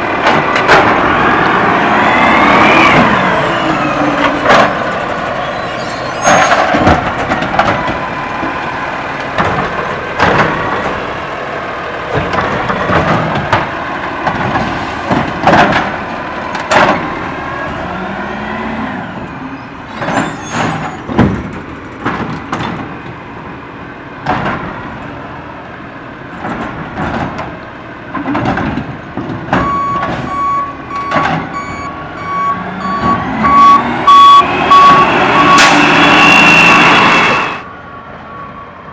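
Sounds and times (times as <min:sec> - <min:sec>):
metal clanks and rattles: 0:26.4 - 0:30.2
backup alarm beeping: 0:29.6 - 0:37.6.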